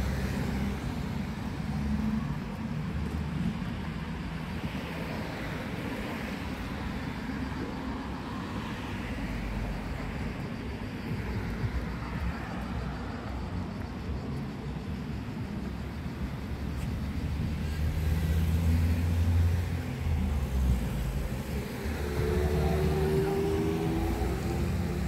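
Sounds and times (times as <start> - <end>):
street traffic: 0.0 - 25.0
car engine passing: 17.2 - 25.0.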